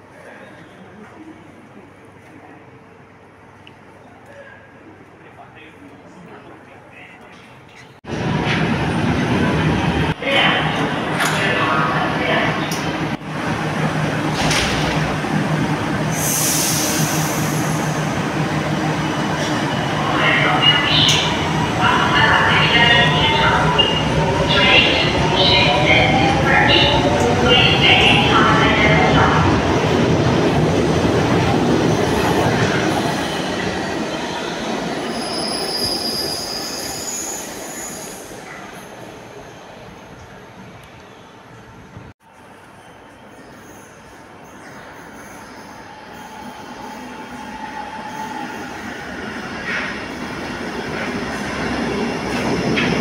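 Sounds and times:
metro train running hum: 0:00.0 - 0:53.0
train wheels squealing: 0:35.0 - 0:38.4, 0:42.8 - 0:48.8.

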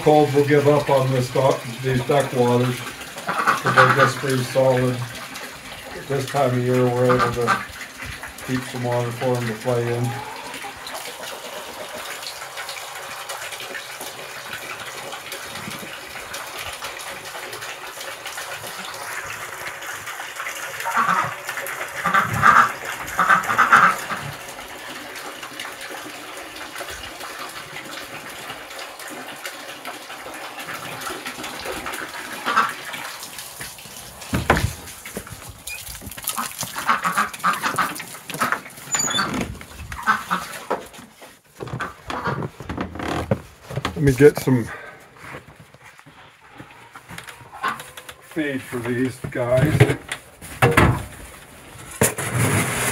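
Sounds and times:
hose water splashing into metal pans: 0:00.0 - 0:52.9
ducks quacking: 0:03.2 - 0:04.8, 0:06.9 - 0:07.8, 0:20.8 - 0:21.4, 0:22.0 - 0:24.4, 0:32.4 - 0:32.9, 0:36.3 - 0:38.6, 0:40.0 - 0:40.7, 0:46.8 - 0:48.1.

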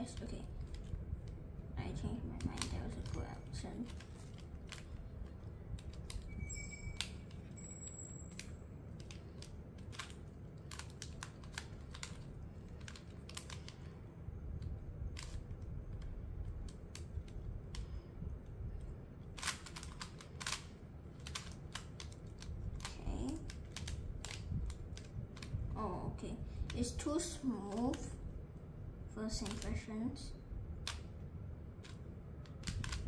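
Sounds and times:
plastic puzzle cube clicking: 0:02.4 - 0:07.6, 0:08.2 - 0:13.9, 0:14.6 - 0:18.1, 0:18.8 - 0:25.6, 0:29.3 - 0:29.8, 0:30.8 - 0:31.1, 0:31.8 - 0:33.0.

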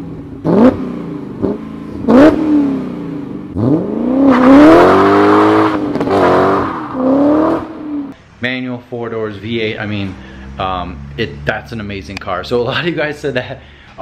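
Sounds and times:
car accelerating away: 0:00.0 - 0:08.2
car engine throttle blips: 0:00.0 - 0:08.2.

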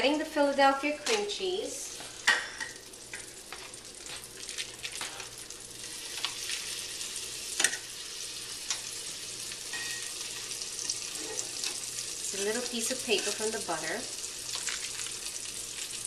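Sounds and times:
butter sizzling in a skillet: 0:00.7 - 0:16.0.

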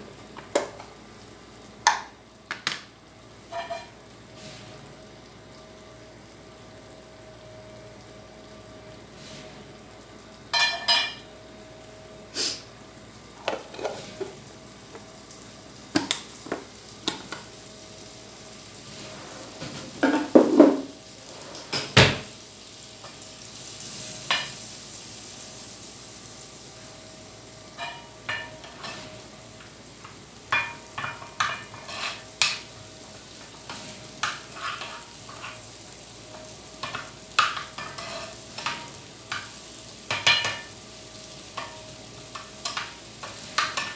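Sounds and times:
faint sizzle: 0:00.0 - 0:43.9
spoon scraping frying pan: 0:03.5 - 0:04.0, 0:13.5 - 0:14.4, 0:27.8 - 0:29.2, 0:30.0 - 0:32.7, 0:33.4 - 0:35.7, 0:36.3 - 0:40.7.

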